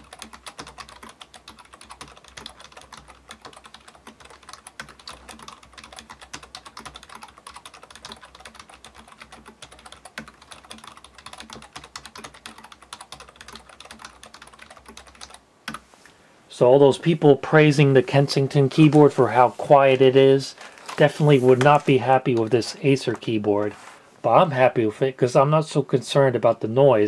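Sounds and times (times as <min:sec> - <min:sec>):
clicky keyboard typing: 0:00.0 - 0:15.8.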